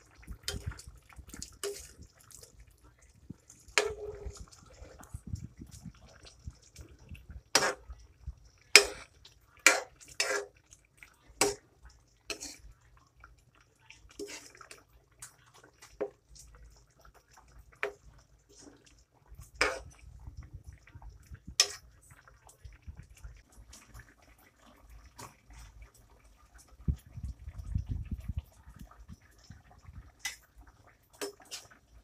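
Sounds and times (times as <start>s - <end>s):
metal ladle clinking and scraping pan: 0.4s - 2.4s, 3.6s - 5.1s, 7.5s - 8.0s, 8.7s - 10.6s, 11.4s - 11.6s, 12.3s - 12.7s, 19.4s - 20.0s, 21.5s - 21.9s, 31.2s - 31.8s.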